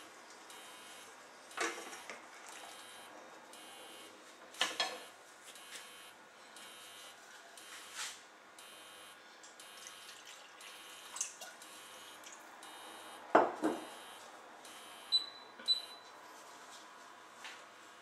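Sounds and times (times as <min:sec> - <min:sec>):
liquid trickling and dripping: 0:09.4 - 0:12.5.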